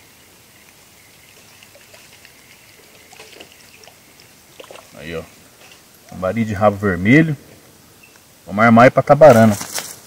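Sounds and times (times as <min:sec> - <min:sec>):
river rapid rushing water: 0:00.5 - 0:05.9.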